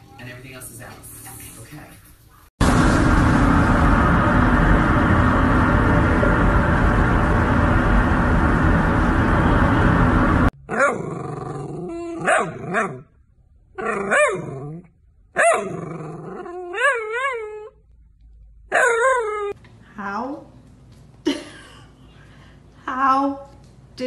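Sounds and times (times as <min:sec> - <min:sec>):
steady rushing noise: 0:02.6 - 0:10.5.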